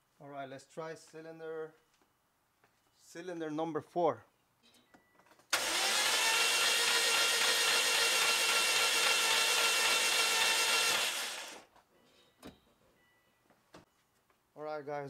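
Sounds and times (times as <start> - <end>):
engine starter motor cranking: 5.5 - 11.7.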